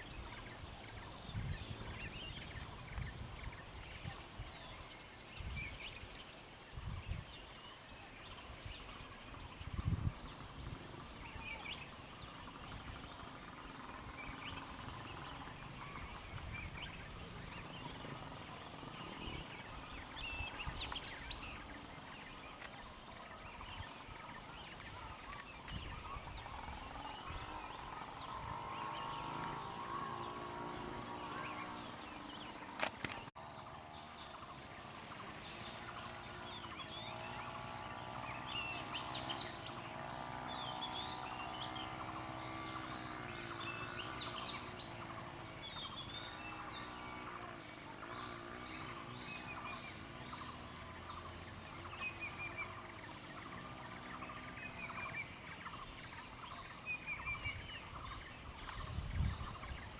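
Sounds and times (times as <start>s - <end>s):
insect drone: 0.0s - 59.9s
bird chirps: 7.2s - 34.6s.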